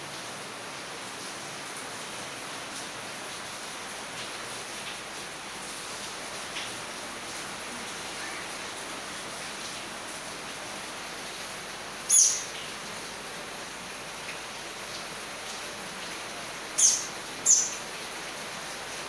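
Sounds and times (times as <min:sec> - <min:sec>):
high-pitched chirps: 0:16.8 - 0:17.8.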